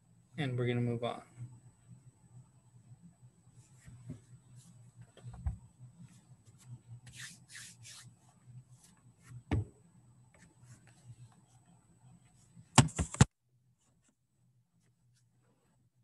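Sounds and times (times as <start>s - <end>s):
low steady hum: 0.0s - 16.0s
rubbing and brushing on microphone: 3.5s - 9.4s, 10.4s - 11.6s.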